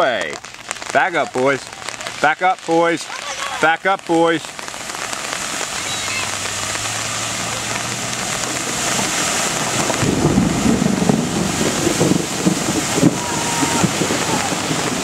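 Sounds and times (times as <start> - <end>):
water spray and splashing: 0.0 - 15.0
vehicle engine running: 5.7 - 12.3.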